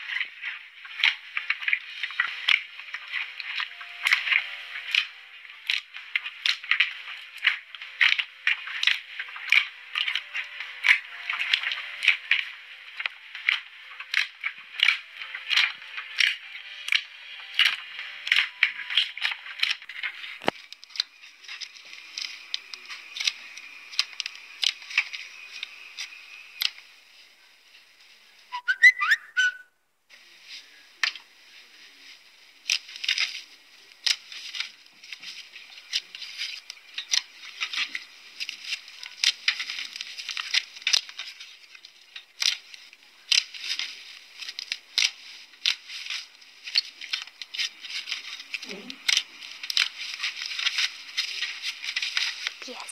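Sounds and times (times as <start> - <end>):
squeaky whistle-like glide: 28.5 - 29.7.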